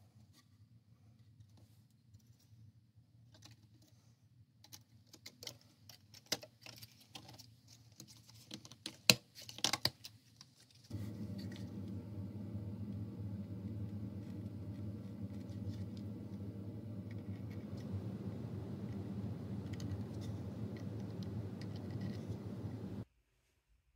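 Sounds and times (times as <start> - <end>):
steady low hum: 10.9 - 23.1.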